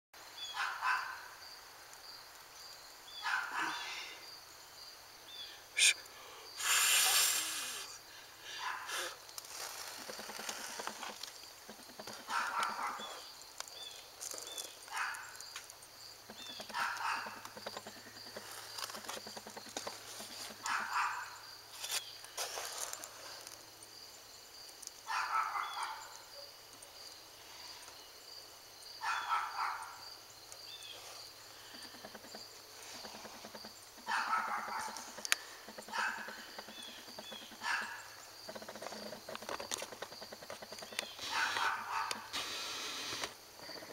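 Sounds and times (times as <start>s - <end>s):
animal calling: 3.2s - 4.2s, 5.8s - 11.1s, 11.7s - 13.3s, 16.3s - 21.4s, 31.6s - 39.4s, 40.0s - 43.9s.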